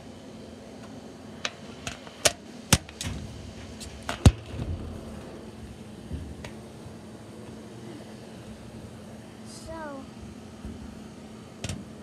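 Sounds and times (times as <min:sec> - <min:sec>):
low rubbing rumble: 0:03.0 - 0:11.0.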